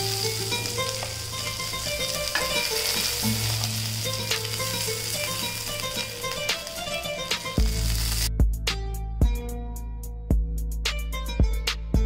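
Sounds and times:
kebabs sizzling in oil: 0:00.0 - 0:08.3
soft background music: 0:00.0 - 0:12.0.

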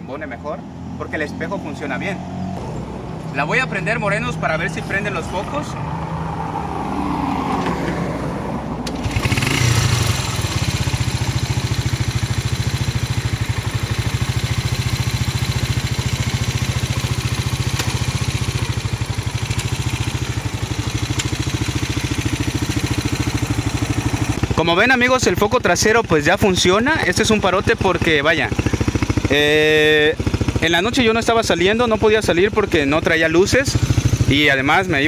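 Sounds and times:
motorcycle engine kick-started: 0:08.8 - 0:25.2.

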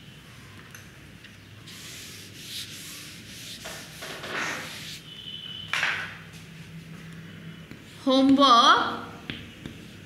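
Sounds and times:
chalk scratching on chalkboard: 0:01.7 - 0:05.1.

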